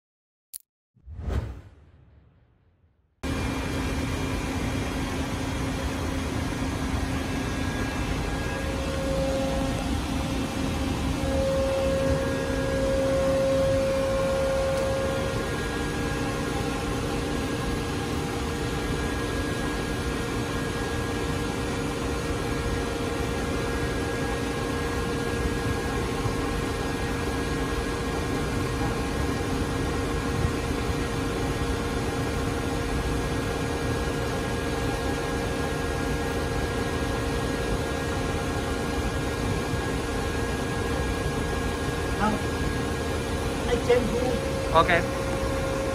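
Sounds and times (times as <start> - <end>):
loud machine whine: 3.2 - 45.9
lathe machine hum: 3.3 - 29.8.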